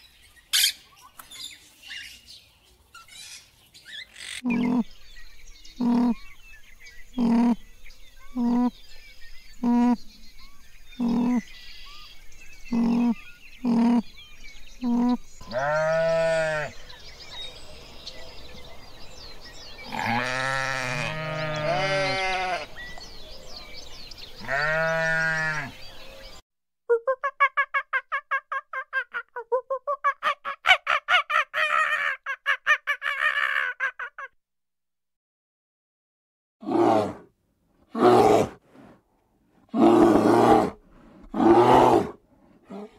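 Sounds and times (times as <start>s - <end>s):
long arching animal calls: 12.7s - 14.2s, 30.0s - 34.3s.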